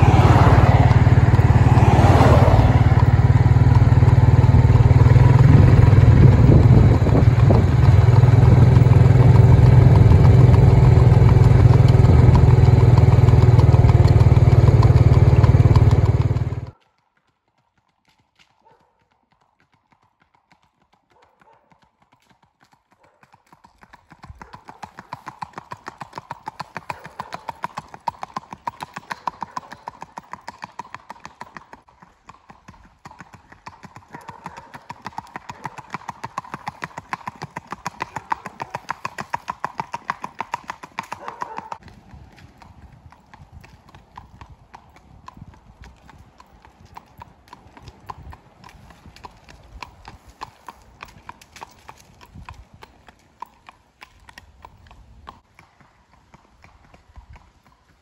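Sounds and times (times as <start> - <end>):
vehicle engine running: 0.0 - 16.8
horse hooves clip-clopping on pavement: 0.0 - 58.0.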